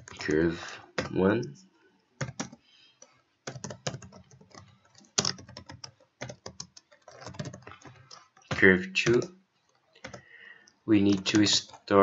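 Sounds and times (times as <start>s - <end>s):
typing on computer keyboard: 0.0s - 0.3s, 2.2s - 10.3s, 11.0s - 12.0s.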